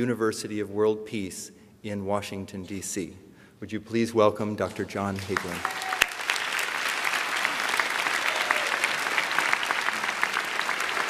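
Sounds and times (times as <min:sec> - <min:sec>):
audience applauding: 0:05.2 - 0:11.0.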